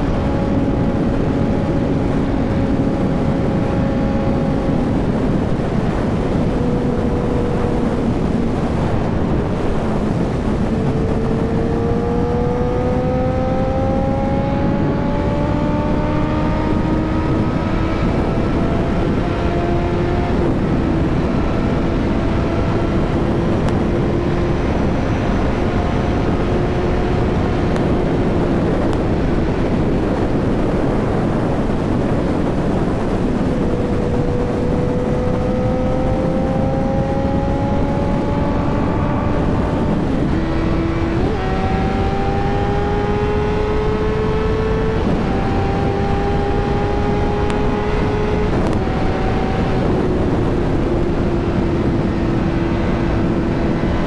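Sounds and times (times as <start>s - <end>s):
motorcycle engine running: 0.0s - 54.0s
wind and road noise: 0.0s - 54.0s.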